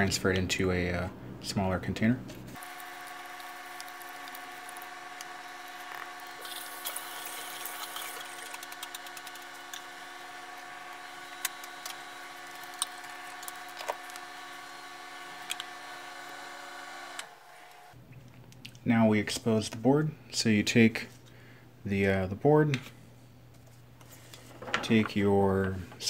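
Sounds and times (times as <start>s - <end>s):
steady machine hum: 0.0s - 18.0s.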